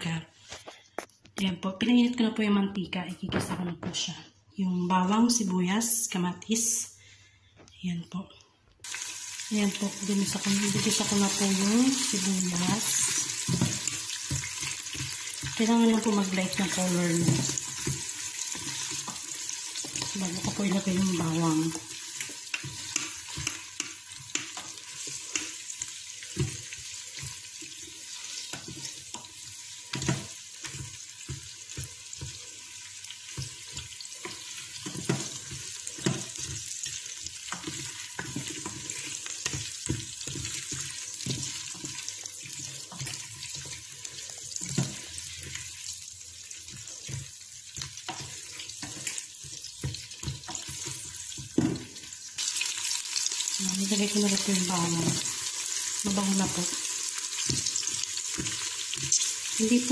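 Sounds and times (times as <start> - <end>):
onions sizzling in hot oil: 8.8 - 59.9
spoon scraping and knocking pot: 10.3 - 25.6, 26.2 - 32.7, 33.3 - 45.7, 46.6 - 52.0.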